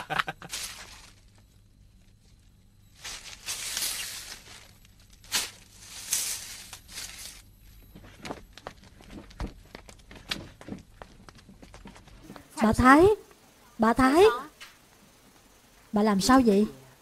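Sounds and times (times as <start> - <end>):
broom sweeping: 0.4 - 1.2, 2.9 - 7.5.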